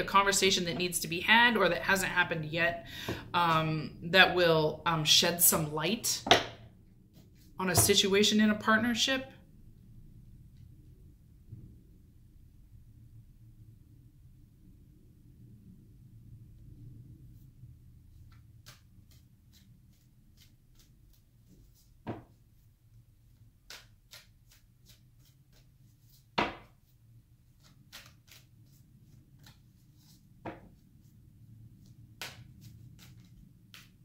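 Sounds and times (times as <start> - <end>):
low room hum: 0.0 - 34.0
cards being shuffled: 18.2 - 22.4, 23.2 - 34.0.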